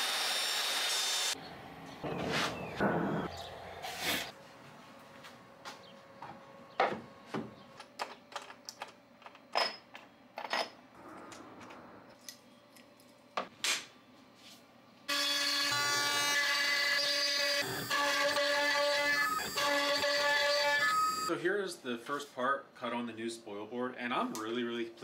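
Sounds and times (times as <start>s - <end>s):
router spindle cutting wood whine: 15.1s - 21.3s.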